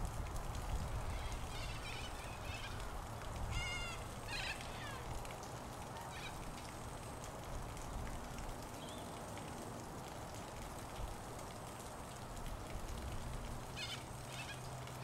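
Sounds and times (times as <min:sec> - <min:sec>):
steady rain falling: 0:00.0 - 0:15.0
short high bird calls: 0:01.1 - 0:02.8, 0:03.5 - 0:05.1.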